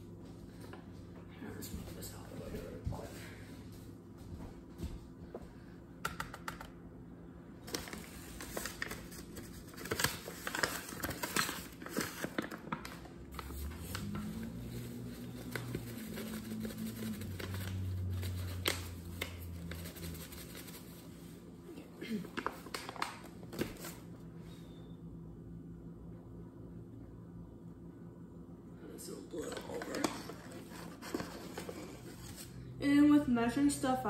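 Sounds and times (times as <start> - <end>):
low steady hum: 0.0 - 34.0
paper bag crinkling: 7.6 - 21.0.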